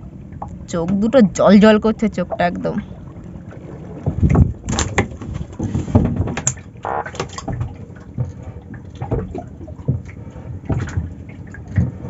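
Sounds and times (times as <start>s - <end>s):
fish flopping on wet deck: 3.4s - 12.0s.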